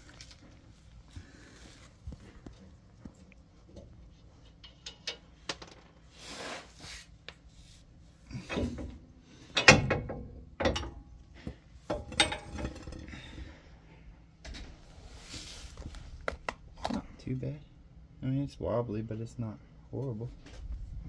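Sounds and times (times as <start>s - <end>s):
metal clunks and knocks: 8.4s - 13.1s.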